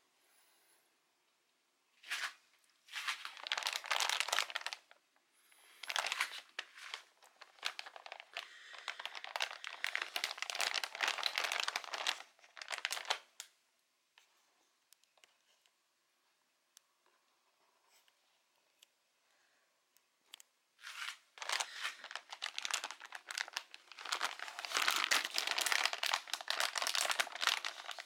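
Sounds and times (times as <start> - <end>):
plastic bag crinkling: 2.1 - 5.0, 5.8 - 13.5, 20.8 - 28.0.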